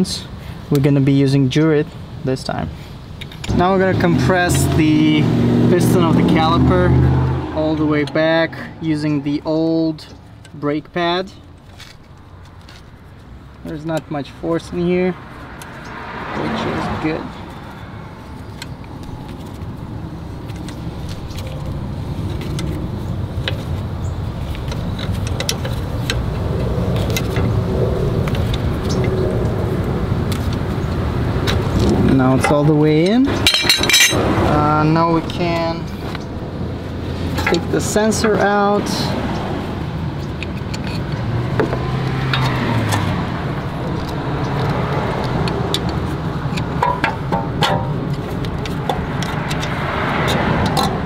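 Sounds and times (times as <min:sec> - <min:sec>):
road traffic: 0:00.0 - 0:51.0
low vehicle rumble: 0:03.1 - 0:51.0
low engine hum: 0:15.0 - 0:51.0.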